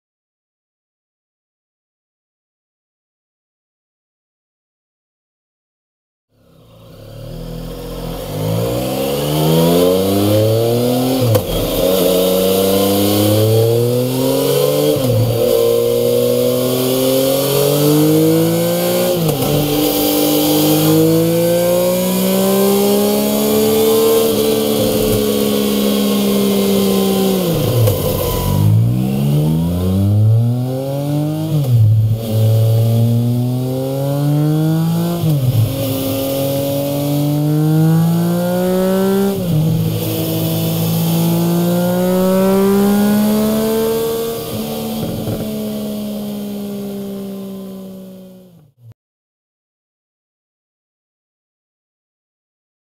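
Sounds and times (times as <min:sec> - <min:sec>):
motorcycle engine revving: 0:06.5 - 0:48.8.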